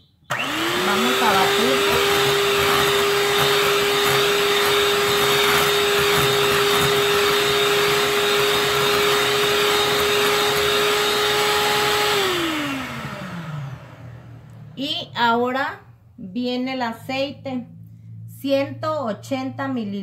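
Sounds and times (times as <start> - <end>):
electric mixer whipping batter: 0.3 - 14.6.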